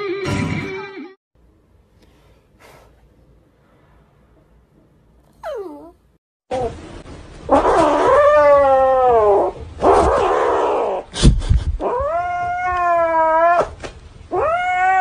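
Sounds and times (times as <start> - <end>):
cat yowling: 5.4 - 6.0, 14.3 - 15.0.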